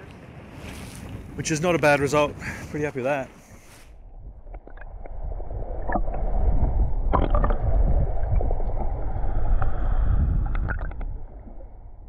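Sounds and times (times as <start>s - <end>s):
water noise: 0.0s - 12.0s.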